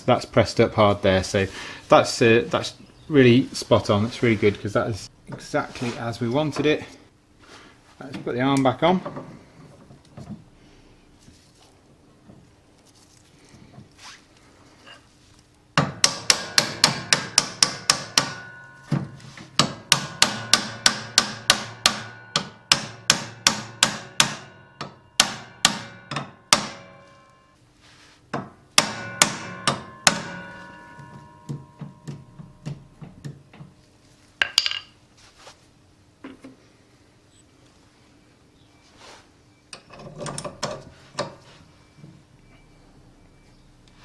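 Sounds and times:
hammer striking metal clamp: 15.8 - 27.5, 28.4 - 33.7.

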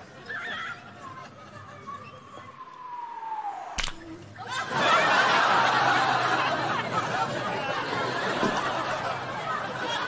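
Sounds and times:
descending whistling tone: 2.0 - 4.4
audience laughter: 4.4 - 10.0.

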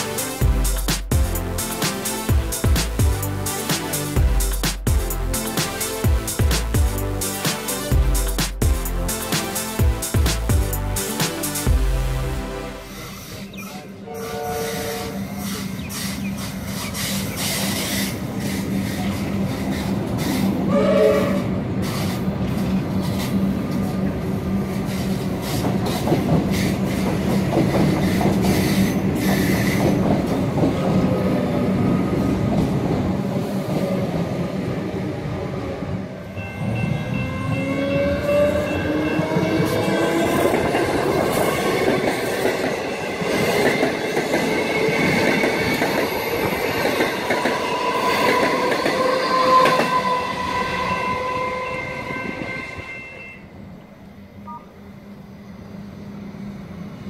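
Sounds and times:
passing train motor whine: 12.0 - 57.0
train wheels clicking over rail joints: 24.7 - 30.8.

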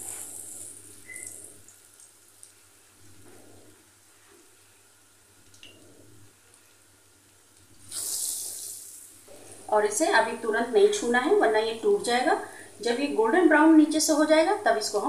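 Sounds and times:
bread frying in hot oil: 0.0 - 13.7
small crackles of oil: 0.1 - 2.7.

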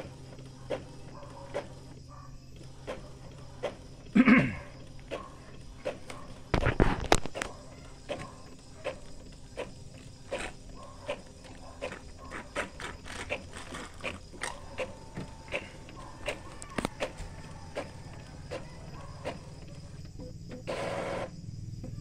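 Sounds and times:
printer mechanism running: 0.0 - 21.4
printer carriage clicks: 4.8 - 21.0.

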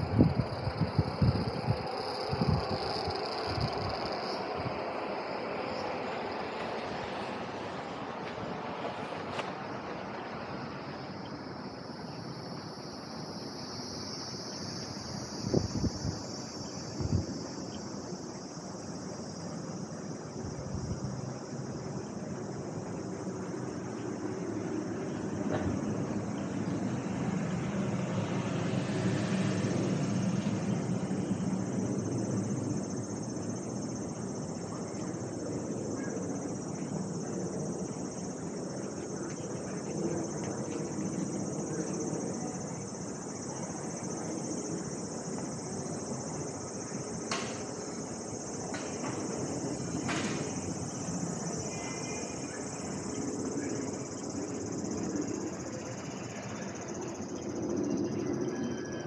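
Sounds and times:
street traffic noise: 0.0 - 21.8, 22.5 - 57.2
cicadas droning: 0.0 - 59.0.

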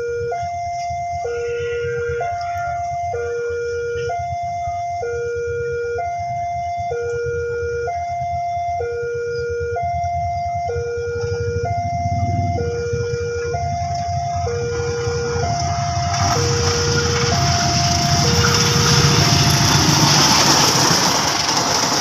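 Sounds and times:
two-tone railway warning alarm: 0.0 - 22.0
oncoming train rushing: 11.1 - 22.0.

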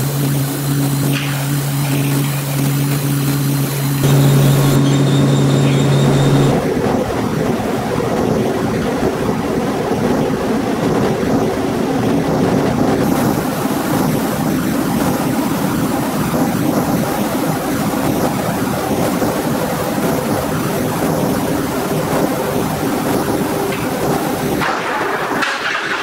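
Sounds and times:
low machinery hum: 0.0 - 9.4
rushing rumble of dryer: 0.0 - 26.0.

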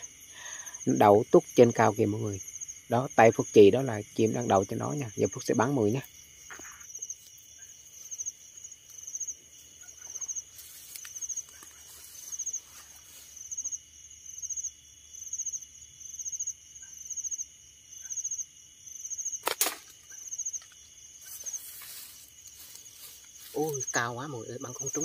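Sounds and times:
insect chirping trills: 0.0 - 25.0
slingshot snap: 19.4 - 20.1.

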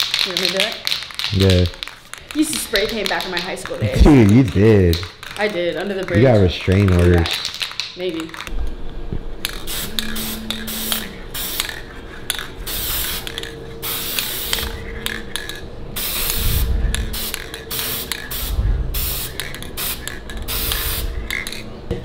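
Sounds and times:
spray can hissing in bursts: 9.5 - 11.8, 12.7 - 14.7, 16.0 - 21.6.

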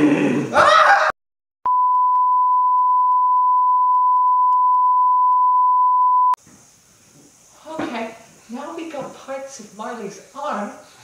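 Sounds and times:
electronic bleep tone: 1.7 - 6.4.

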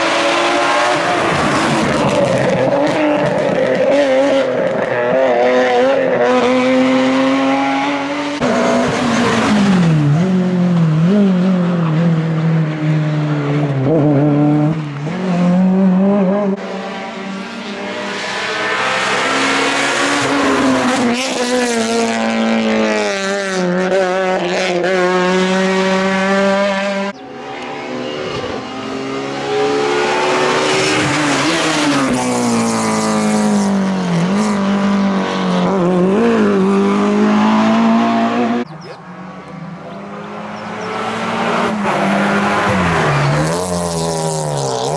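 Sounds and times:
rally car engines revving: 0.0 - 44.9.

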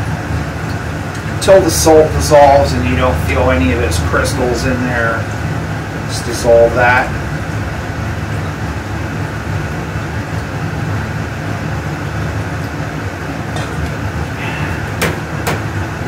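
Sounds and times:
air handling hum and rush: 0.0 - 16.0.

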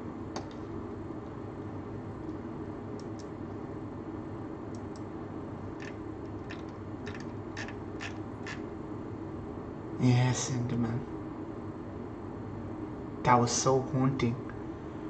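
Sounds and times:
low room hum: 0.0 - 15.0
keyboard and mouse clicks: 3.0 - 3.3, 5.8 - 8.6.

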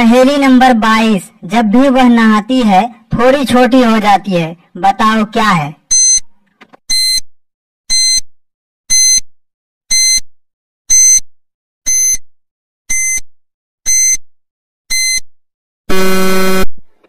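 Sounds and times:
low buzzer: 10.9 - 11.2, 13.9 - 14.3, 14.9 - 15.3, 15.9 - 16.9.

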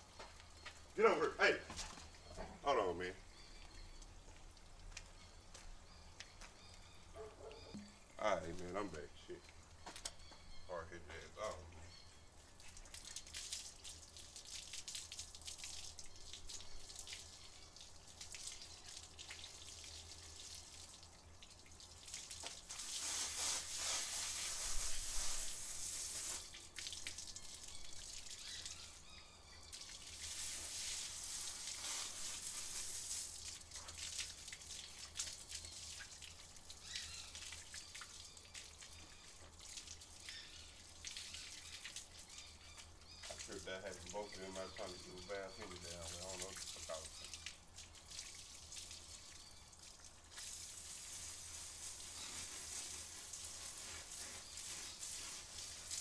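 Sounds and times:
water dripping and pattering: 0.0 - 56.0
water splattering on concrete: 12.5 - 29.0, 29.6 - 56.0
hose water spraying: 21.9 - 29.0, 29.8 - 38.2, 50.3 - 56.0.

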